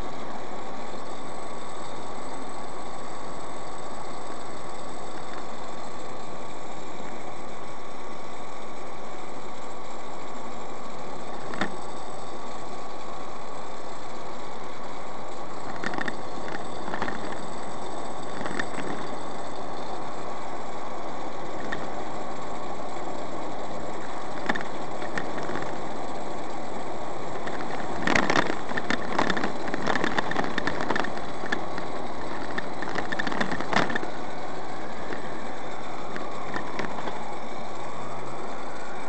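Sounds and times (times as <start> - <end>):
rattles and knocks: 15.7 - 17.5, 18.3 - 19.1, 24.4 - 25.8, 27.4 - 34.2, 36.1 - 37.2.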